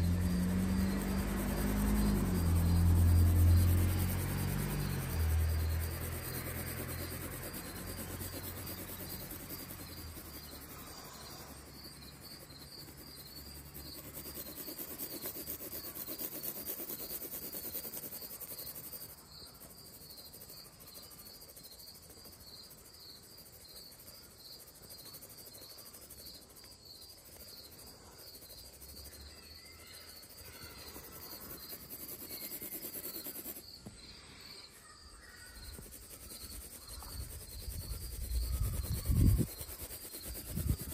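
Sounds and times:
pencil scratching on paper: 4.2s - 22.4s, 30.2s - 33.9s, 35.5s - 40.9s.

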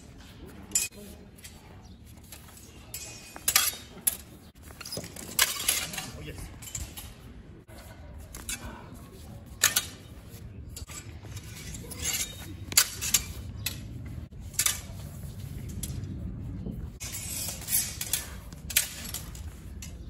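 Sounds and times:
swords clashing: 2.3s - 7.3s, 8.3s - 15.2s, 17.0s - 20.0s.

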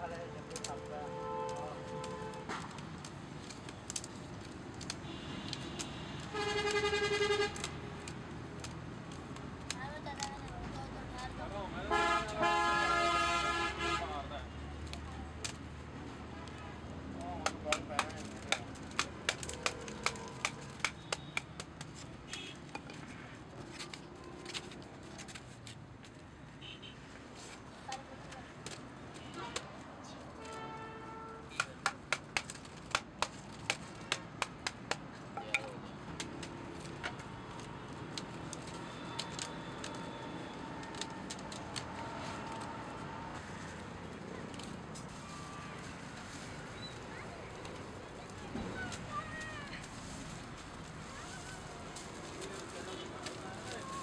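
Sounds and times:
vehicle horn honk: 11.9s - 14.1s
wooden mallet knocking bamboo: 17.4s - 23.0s, 31.5s - 37.2s.

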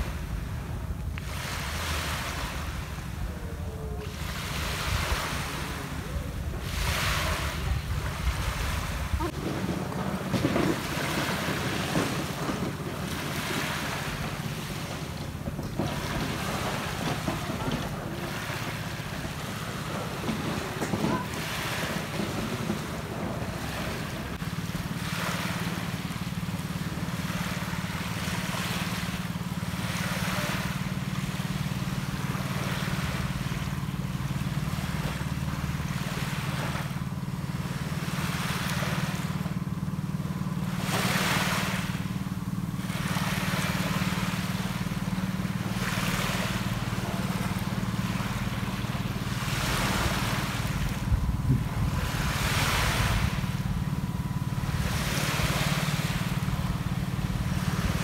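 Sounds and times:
small waves washing onto beach: 0.0s - 58.0s
steady low hum: 0.0s - 58.0s.

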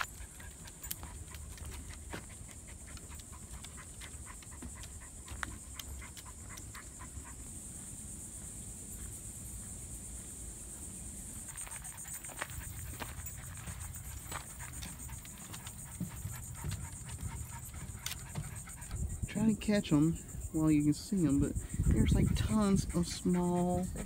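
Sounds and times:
footsteps on wooden boardwalk: 0.0s - 19.1s
walking and handling noise: 0.0s - 20.1s, 20.7s - 24.0s
steady high-pitched hiss: 0.0s - 24.0s.

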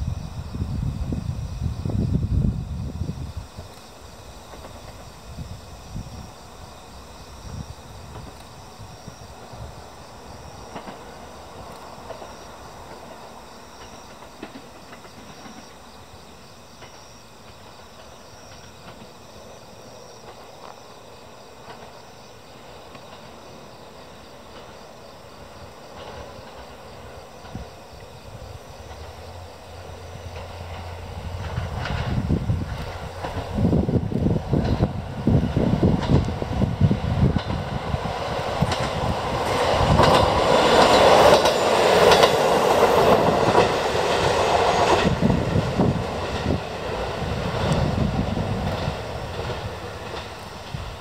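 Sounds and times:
diesel railcar rumble: 0.0s - 51.0s
insects chirping: 0.0s - 51.0s.

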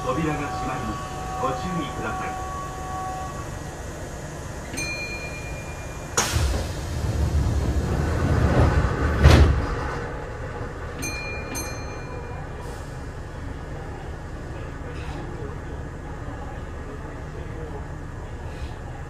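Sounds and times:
train doors rumbling shut: 0.0s - 13.3s
rush of air: 6.2s - 9.3s.

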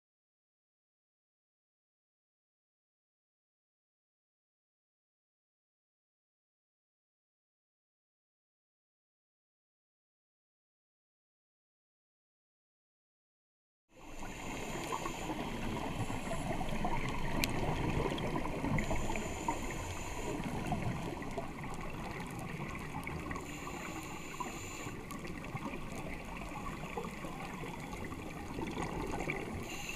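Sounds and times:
underwater crackling hiss: 14.0s - 29.9s.

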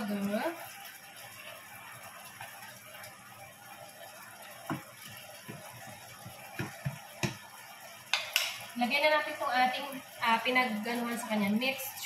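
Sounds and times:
pork sizzling in a frying pan: 0.0s - 12.0s
spatula and fork knocking pan: 4.7s - 7.4s, 8.1s - 8.7s.

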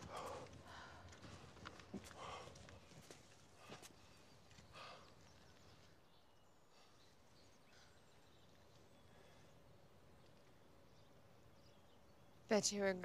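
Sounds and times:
faint bird chirps: 3.6s - 13.0s.

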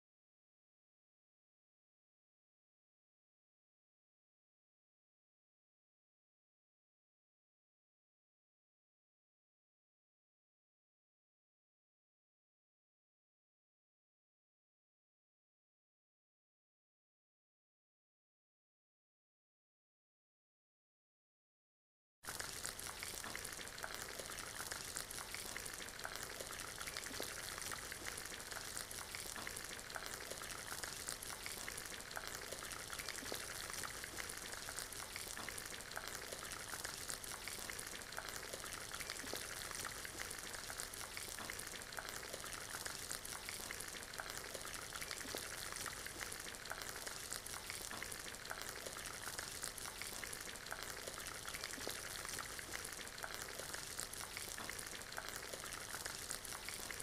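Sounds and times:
vegetables sizzling in hot oil: 22.3s - 57.0s.

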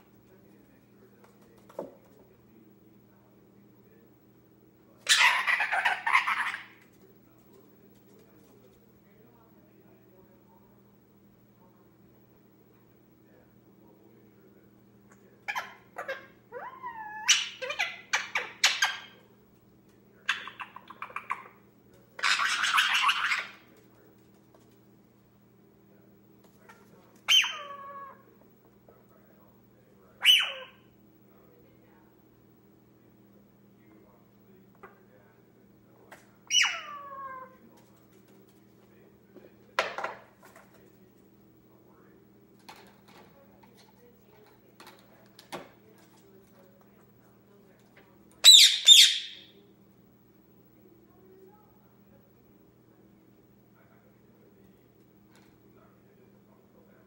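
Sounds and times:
parrot clicks and chatter: 20.2s - 21.6s
harsh raspy parrot squawk: 22.2s - 23.6s, 27.3s - 28.2s, 30.2s - 30.8s, 36.5s - 37.5s, 48.4s - 49.5s
parrot whistling: 48.4s - 49.5s.

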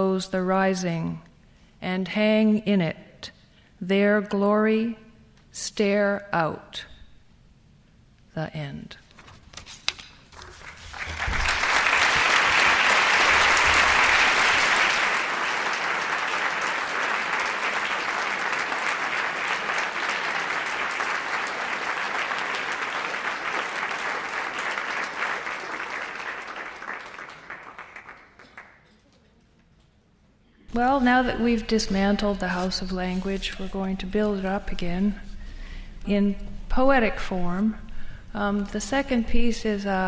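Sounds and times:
audience applauding: 10.4s - 29.0s.

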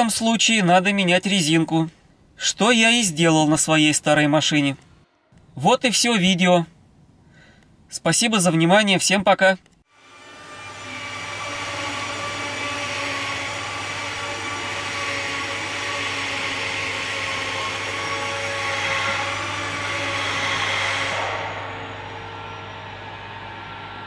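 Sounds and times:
low hum: 9.9s - 24.0s
whirring motor: 9.9s - 24.0s.

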